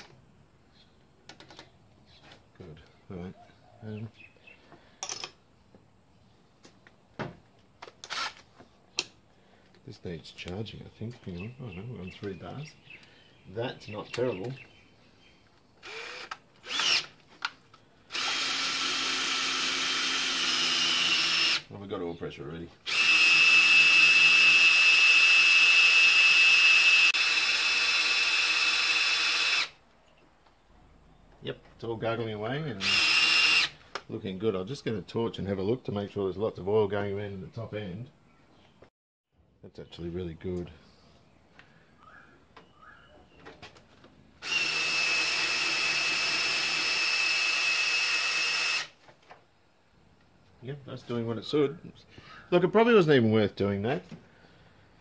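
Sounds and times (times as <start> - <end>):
cordless drill motor whine: 8.1 - 8.4, 15.8 - 17.1, 18.1 - 21.7, 22.9 - 29.8, 32.8 - 33.8, 44.4 - 49.0.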